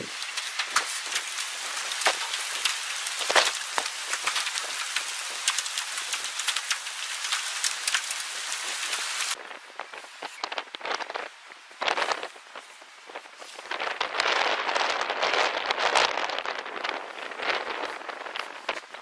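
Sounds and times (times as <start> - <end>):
hailstones striking: 0.0 - 9.4
heavy rain hissing: 0.0 - 9.4.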